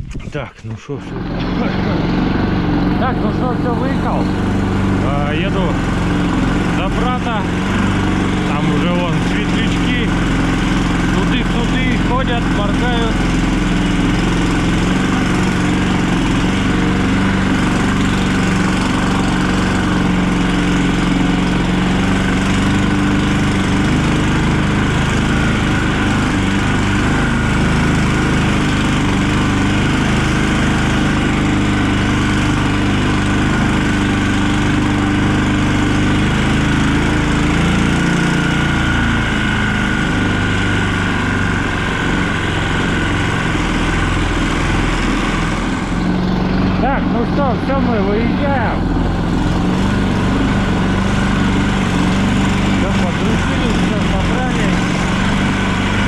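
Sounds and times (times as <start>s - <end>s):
vehicle engine running: 0.0s - 56.0s.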